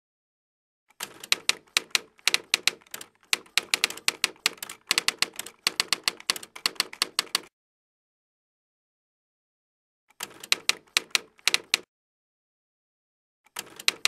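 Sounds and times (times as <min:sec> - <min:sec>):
typewriter keys clacking: 0:01.0 - 0:07.5, 0:10.2 - 0:11.8, 0:13.6 - 0:14.0.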